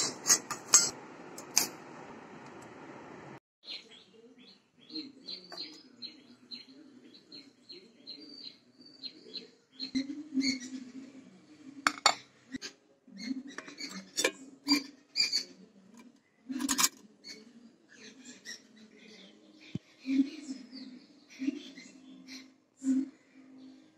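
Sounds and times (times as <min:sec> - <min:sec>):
small bird chirping: 0:03.6 - 0:06.6.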